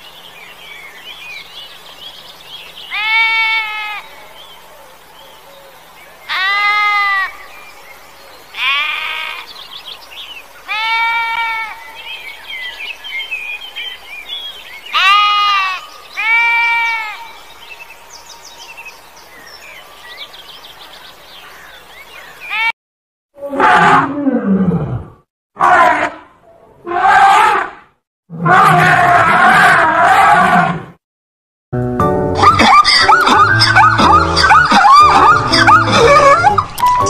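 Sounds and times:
sheep bleating: 2.9 - 4.0, 8.6 - 9.5, 14.9 - 17.2
elephant call: 32.4 - 37.0.

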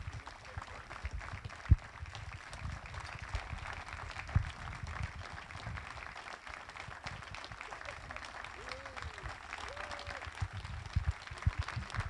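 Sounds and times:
light applause: 0.0 - 12.0.

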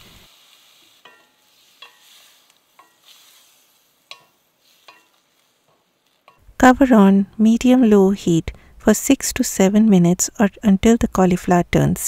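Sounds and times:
faint sizzle: 0.0 - 8.7
spatula tapping metal pan: 1.0 - 3.2, 4.0 - 5.2.

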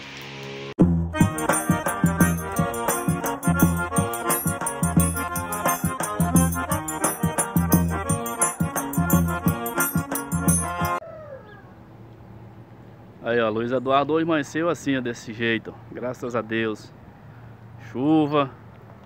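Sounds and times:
background music with a beat: 0.8 - 11.0.

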